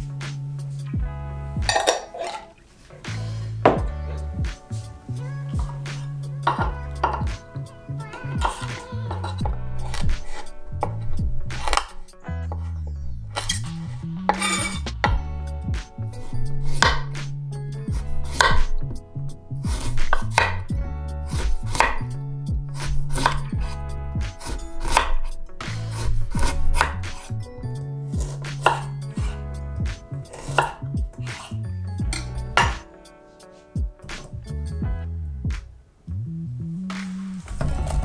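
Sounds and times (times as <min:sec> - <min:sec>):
background music with bass: 0:00.0 - 0:38.0
knife striking wooden cutting board: 0:09.8 - 0:12.0, 0:16.6 - 0:17.2, 0:18.3 - 0:18.8, 0:19.7 - 0:20.6, 0:21.3 - 0:22.1, 0:22.7 - 0:27.3, 0:28.2 - 0:29.4, 0:30.3 - 0:31.5, 0:32.1 - 0:32.9.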